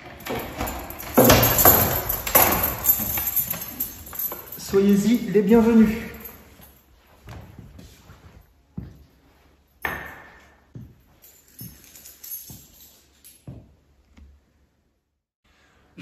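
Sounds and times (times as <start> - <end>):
footsteps on stone floor: 6.6 - 9.4.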